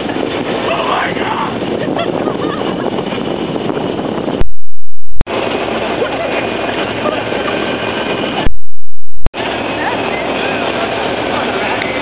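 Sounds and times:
wind rush: 0:00.0 - 0:04.5.

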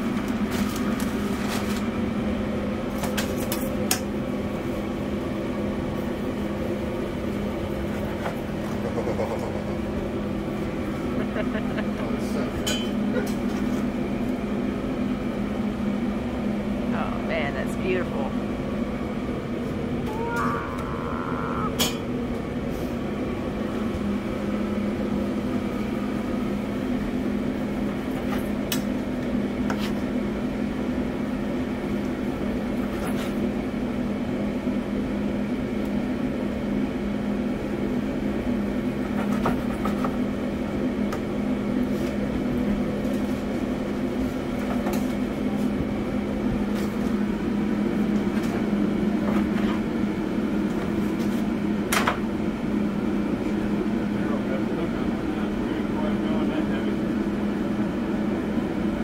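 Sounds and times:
kitchen equipment hum: 0:00.0 - 0:15.5.

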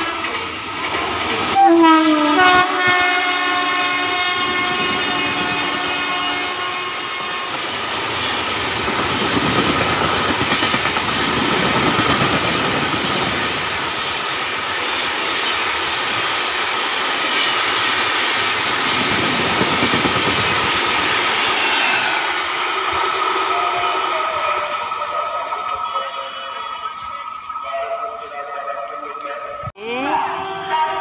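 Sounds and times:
train passing with rushing rumble: 0:00.0 - 0:31.0
train horn: 0:01.5 - 0:07.8, 0:30.1 - 0:31.0.

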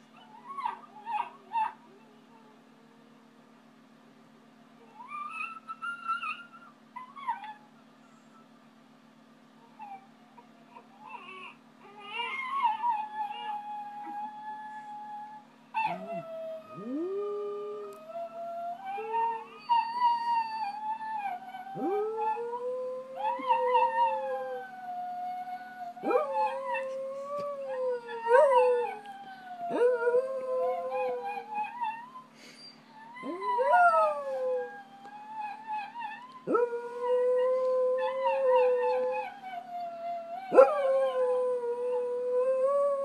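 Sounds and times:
dog howling: 0:15.8 - 0:32.1, 0:33.0 - 0:43.0.

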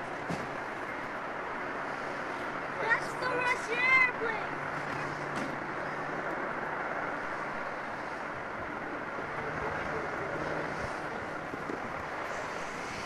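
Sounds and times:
distant jet aircraft rushing: 0:00.1 - 0:13.0.

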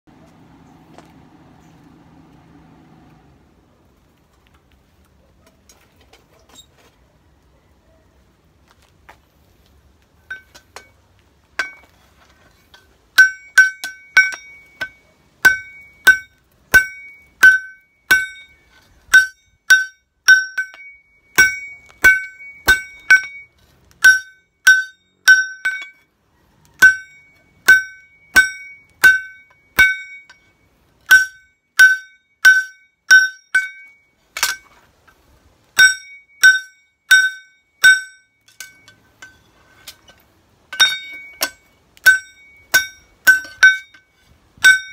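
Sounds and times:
hammer striking metal on anvil: 0:10.3 - 0:11.0, 0:11.6 - 0:11.9, 0:12.7 - 0:26.1, 0:26.8 - 0:34.8, 0:35.8 - 0:44.9.

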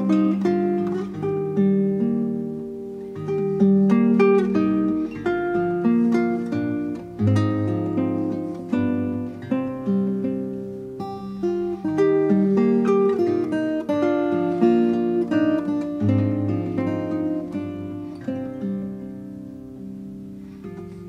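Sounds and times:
acoustic guitar playing: 0:00.0 - 0:21.0.

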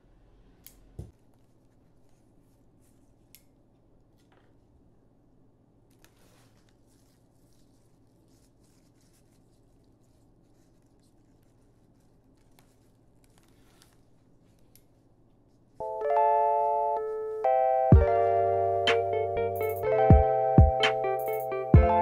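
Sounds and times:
bell-like chiming music: 0:15.8 - 0:22.0.

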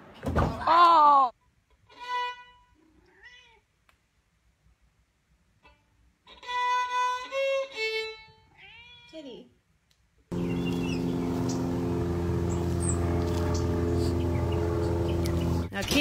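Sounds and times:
violin bowed notes: 0:01.9 - 0:02.7, 0:05.6 - 0:08.3
cat meowing: 0:03.0 - 0:03.7, 0:08.5 - 0:09.2.

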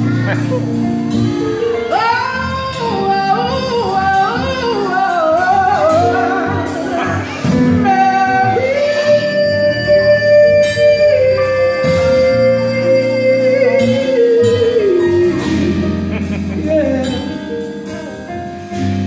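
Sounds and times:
sustained band chords: 0:00.0 - 0:19.0
woman singing gospel-style: 0:01.9 - 0:16.0.

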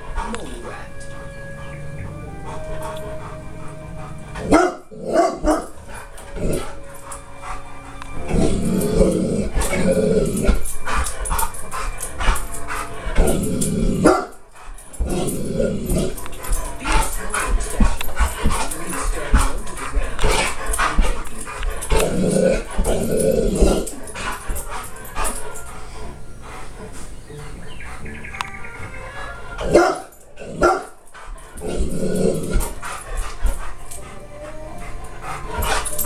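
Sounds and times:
television soundtrack and music: 0:00.0 - 0:36.0
dog barking: 0:04.4 - 0:06.8, 0:12.2 - 0:21.2, 0:29.5 - 0:33.8.

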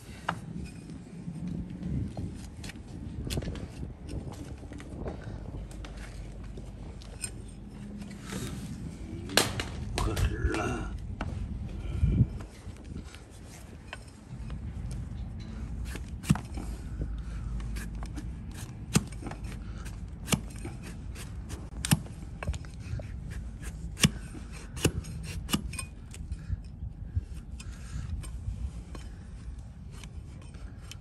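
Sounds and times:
blade scraping hoof: 0:00.2 - 0:09.1, 0:12.4 - 0:26.2.

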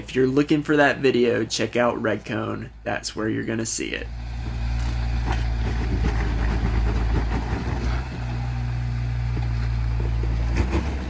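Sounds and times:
engine running at low revs: 0:02.6 - 0:11.0.

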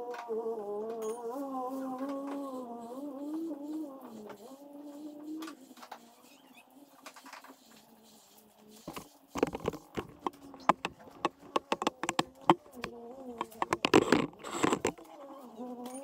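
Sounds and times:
camera handling noise: 0:08.9 - 0:15.0.

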